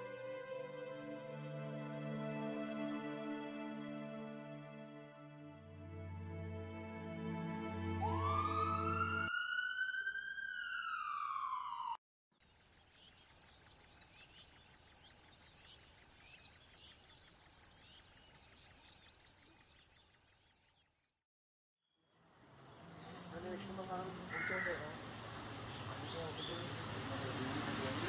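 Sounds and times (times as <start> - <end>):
siren-like wail: 7.8 - 12.0
faint birds chirping: 12.5 - 21.2, 21.9 - 27.0.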